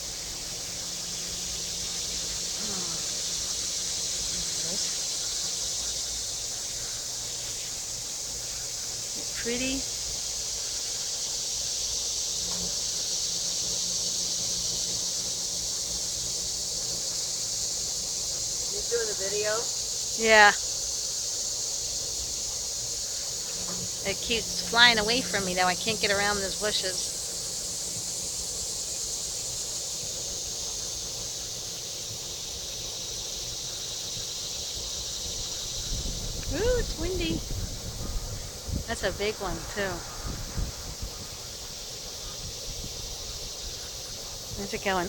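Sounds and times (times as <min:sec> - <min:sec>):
insect chorus drone: 0:00.0 - 0:45.0
leaves rustling: 0:00.0 - 0:45.0
wind rumbling on microphone: 0:35.7 - 0:44.7.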